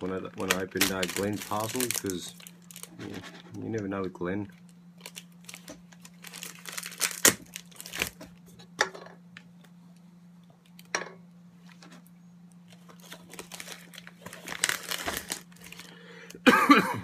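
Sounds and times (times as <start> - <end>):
packaging rustling and tearing: 0.0 - 3.4, 5.0 - 8.3, 12.7 - 16.0.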